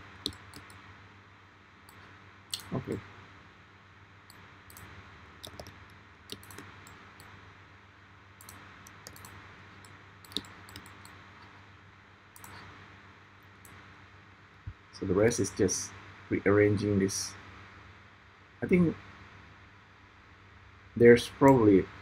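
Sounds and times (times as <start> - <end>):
faint steady hum: 0.0 - 22.0
mouse and keyboard clicks: 0.2 - 0.8, 4.3 - 7.3, 8.4 - 11.5, 12.4 - 12.7.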